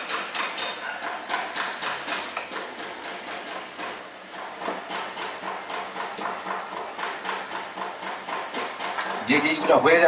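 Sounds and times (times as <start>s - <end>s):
hot oil sizzling and crackling: 1.2s - 10.0s.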